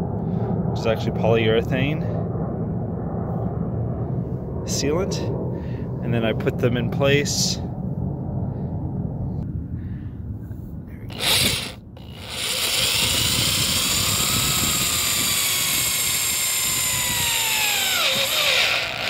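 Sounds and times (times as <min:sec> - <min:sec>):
cordless drill driving screw into metal: 0:11.1 - 0:19.0.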